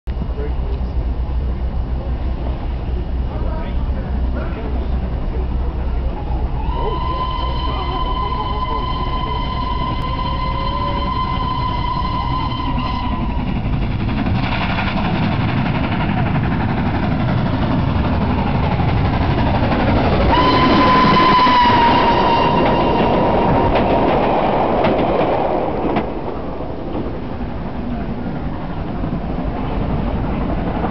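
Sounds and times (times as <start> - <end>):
train rumbling by: 0.1 - 30.9
steam locomotive running hard: 0.2 - 30.9
steam locomotive whistle: 6.5 - 13.7, 20.3 - 23.9.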